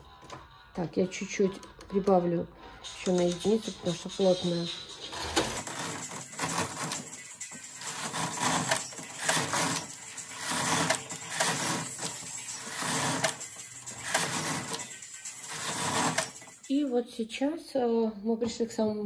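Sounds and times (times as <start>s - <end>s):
knitting machine carriage passing: 4.8s - 16.8s.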